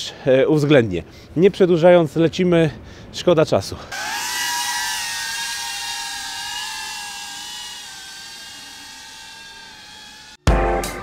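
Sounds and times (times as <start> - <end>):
drone propellers whining: 3.9 - 10.4.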